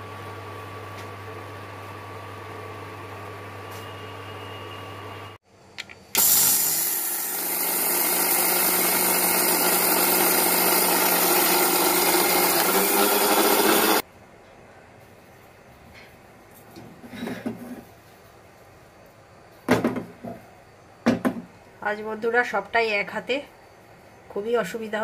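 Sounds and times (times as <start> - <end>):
electric mixer grinder whirring: 6.2 - 14.0.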